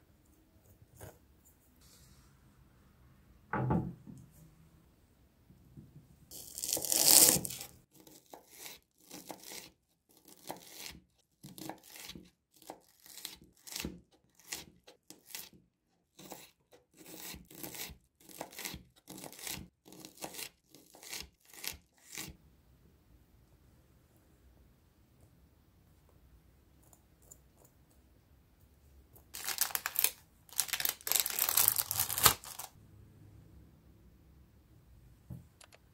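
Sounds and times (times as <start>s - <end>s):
onion tearing: 6.3s - 15.6s, 16.2s - 22.3s, 29.4s - 32.7s.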